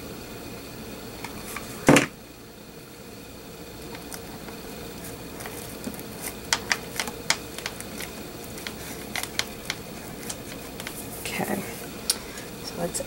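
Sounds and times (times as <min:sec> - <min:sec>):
hands handling beaded trim clicks: 0:06.5 - 0:11.0.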